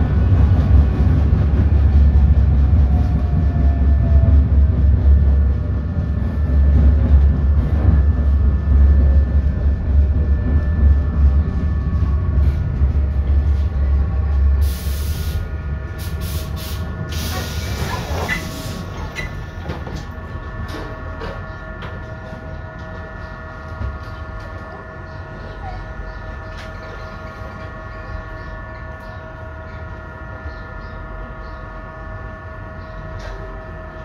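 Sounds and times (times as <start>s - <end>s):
steady whining tones: 0.0s - 32.9s
tram running on rails: 0.0s - 34.0s
compressed air hiss of doors: 14.6s - 15.4s, 16.0s - 18.8s.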